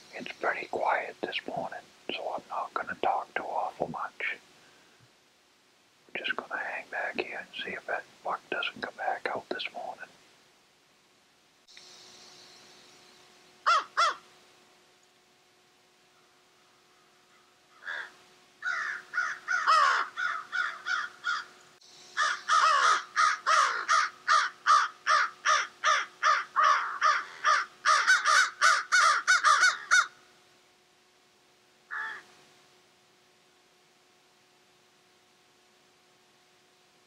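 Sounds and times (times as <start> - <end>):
crows cawing: 13.6 - 14.3, 16.9 - 21.6, 22.2 - 30.2, 31.9 - 32.3.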